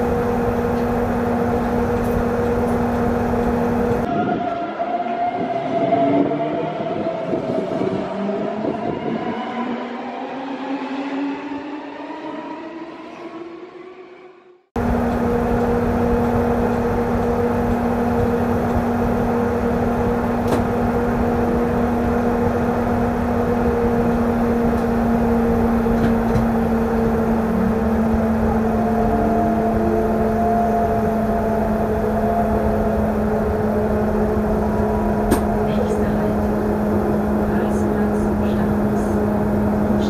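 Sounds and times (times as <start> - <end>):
electrical hum: 0.0 - 4.1
train motor rising whine: 0.0 - 4.1, 14.8 - 40.0.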